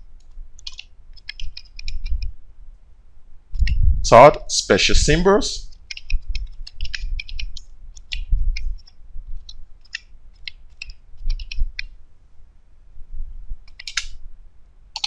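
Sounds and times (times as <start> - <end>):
computer keyboard typing: 0.2 - 2.3, 5.7 - 11.9, 13.7 - 14.2.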